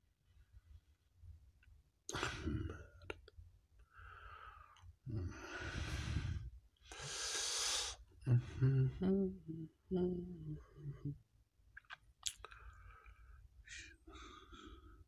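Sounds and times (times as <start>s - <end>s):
soft breathy noise: 3.8s - 11.2s, 12.5s - 15.0s.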